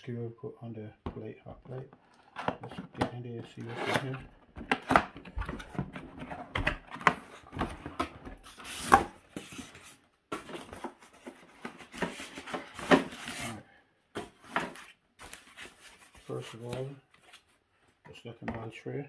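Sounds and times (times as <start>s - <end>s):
cardboard scraping and rubbing: 3.6s - 4.3s, 5.3s - 13.6s
cardboard crinkling: 14.2s - 17.6s.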